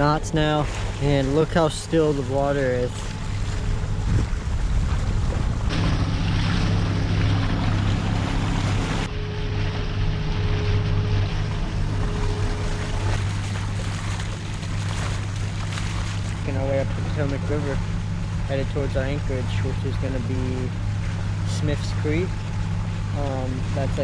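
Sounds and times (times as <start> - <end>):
wind buffeting microphone: 0.0 - 9.1
steady low hum: 0.0 - 24.0
water washing past hulls: 0.0 - 24.0.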